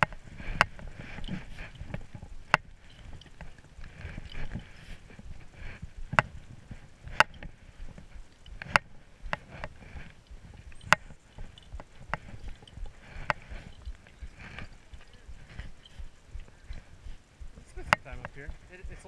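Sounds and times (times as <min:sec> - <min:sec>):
climbing gear clicking and knocking: 0:00.0 - 0:19.0.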